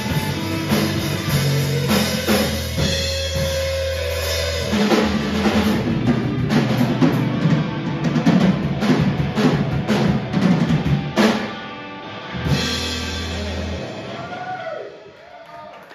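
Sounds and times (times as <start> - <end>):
drum hits and crashes: 0.0 - 11.6
live rock band: 0.0 - 15.9.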